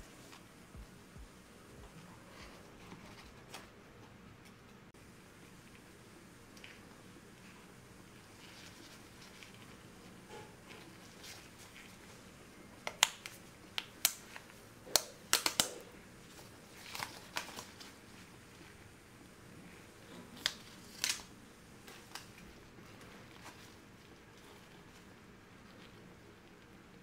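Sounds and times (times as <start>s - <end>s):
plastic film crackling: 15.3s - 18.3s, 20.1s - 25.1s.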